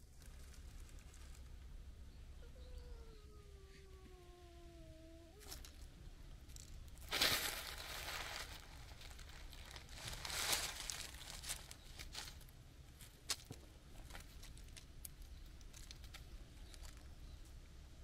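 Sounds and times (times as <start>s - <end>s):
rustling and crunching: 0.0s - 1.8s, 5.4s - 17.8s
cat meowing low: 2.4s - 5.7s.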